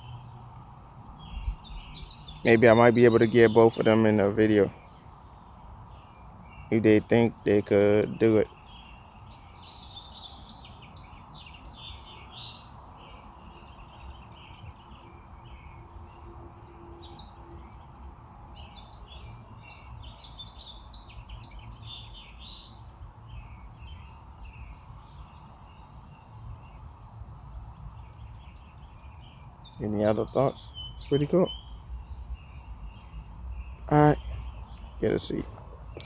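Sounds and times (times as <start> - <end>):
small birds chirping: 0.0 - 36.0.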